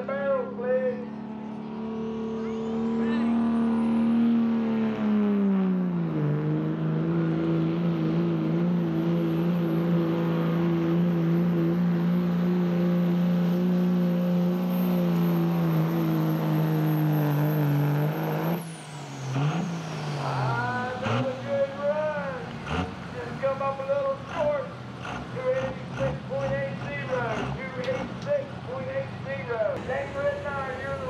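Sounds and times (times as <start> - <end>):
diesel engine at full throttle: 0.0 - 31.0.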